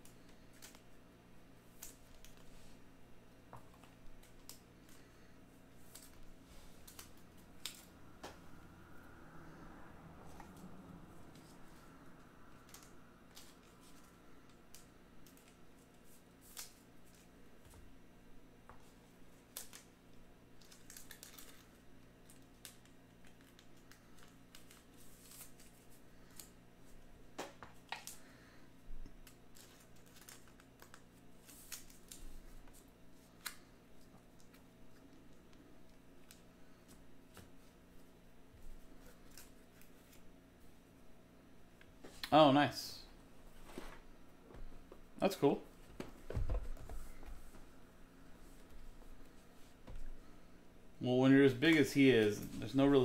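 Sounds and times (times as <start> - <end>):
low steady hum: 0.0 - 53.0
foil wrappers crinkling: 20.6 - 26.6, 29.2 - 33.6.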